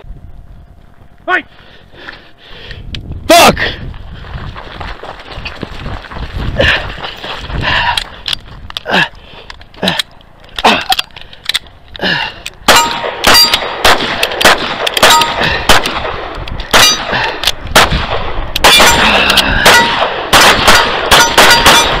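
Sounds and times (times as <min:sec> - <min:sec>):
steel targets ringing: 0:12.7 - 0:13.7, 0:18.6 - 0:20.0, 0:20.6 - 0:22.0
handgun shots: 0:12.7 - 0:17.2, 0:17.8 - 0:22.0.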